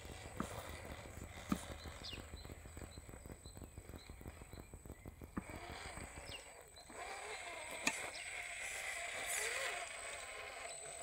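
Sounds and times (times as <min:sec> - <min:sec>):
rapid clicking from drivetrain and tyres: 0:00.0 - 0:11.0
wavering electric motor whine: 0:00.0 - 0:11.0.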